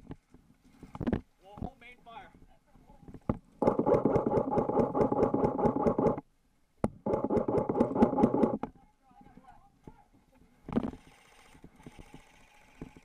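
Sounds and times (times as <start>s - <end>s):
airsoft rifle full-auto bursts: 3.6s - 6.2s, 7.1s - 8.6s
gearbox whine: 3.6s - 6.2s, 7.0s - 8.6s.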